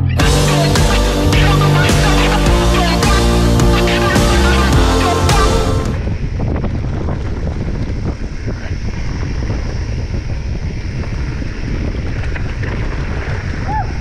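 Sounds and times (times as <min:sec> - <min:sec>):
wind buffeting microphone: 0:05.9 - 0:14.0
bike crackling and rattling: 0:06.4 - 0:14.0.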